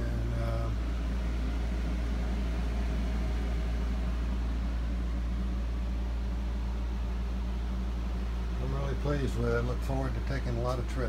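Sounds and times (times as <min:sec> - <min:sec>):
electric fan humming: 0:00.0 - 0:11.0.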